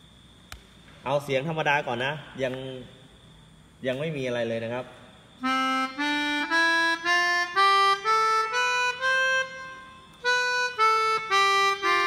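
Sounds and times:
melodica playing a scale: 5.4s - 12.0s.

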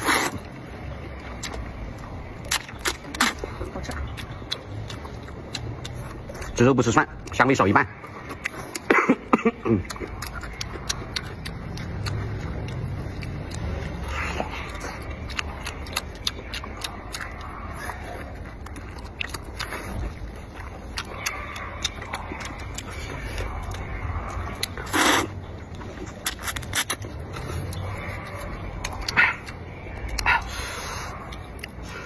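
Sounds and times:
wet chewing and lip-smacking: 0.0s - 32.0s
mouth clicks: 1.2s - 32.0s.

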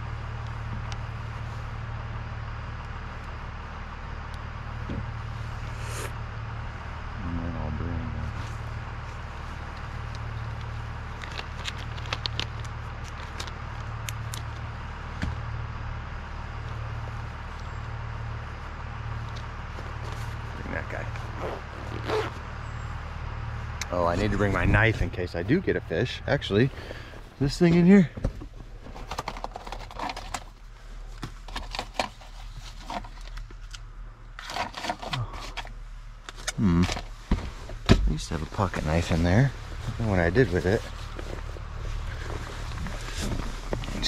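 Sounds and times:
steady low hum: 0.0s - 44.0s
small items rummaged through: 28.7s - 37.8s.

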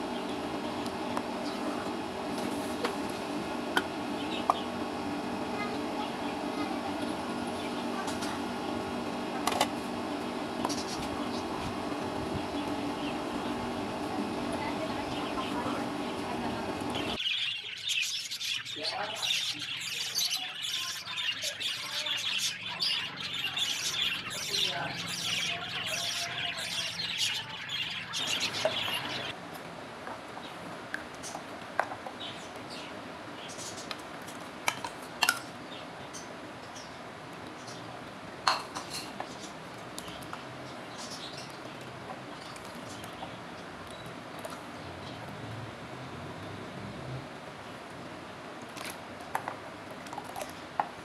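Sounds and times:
birds chirping and squawking: 4.0s - 9.5s, 10.4s - 29.4s, 38.7s - 44.0s.

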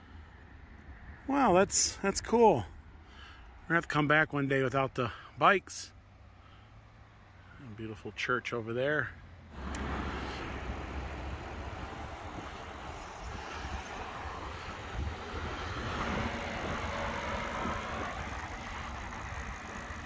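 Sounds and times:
tyre noise on paved path: 9.5s - 19.9s
deep rumble: 9.6s - 20.0s
wind rushing over microphone: 9.6s - 20.0s.

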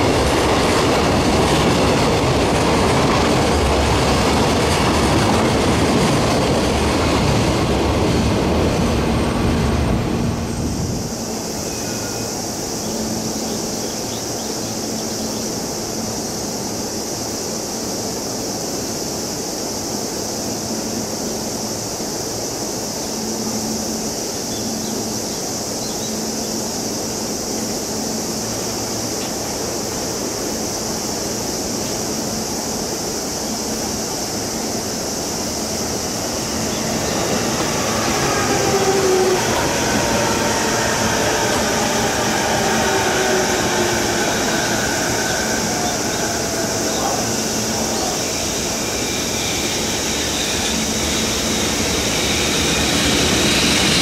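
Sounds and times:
electric trains rumbling: 0.0s - 54.0s
locomotive motors whining: 36.2s - 54.0s.

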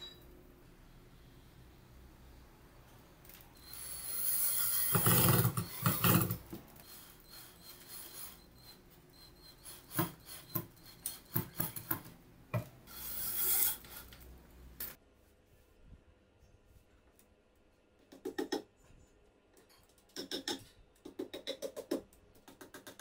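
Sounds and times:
drill driving screw into wood: 3.6s - 6.4s.

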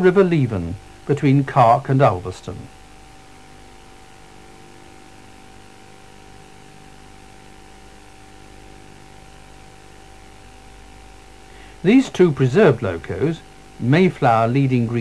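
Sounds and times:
faint steady whine: 0.0s - 15.0s
low electrical hum: 0.0s - 15.0s
tape hiss: 0.0s - 15.0s.

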